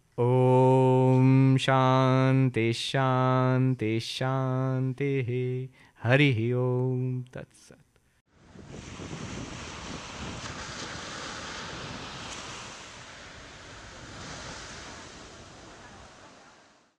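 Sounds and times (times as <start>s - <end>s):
waves breaking on beach: 8.3s - 16.9s.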